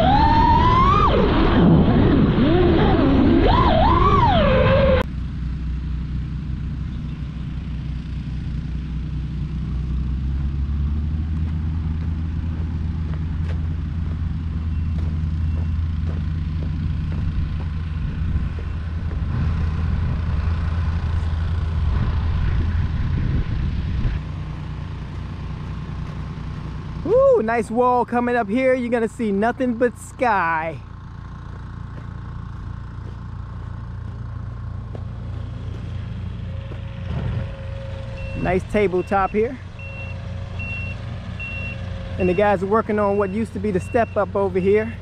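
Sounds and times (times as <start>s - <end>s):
vehicle engine low rumble: 0.0s - 45.0s.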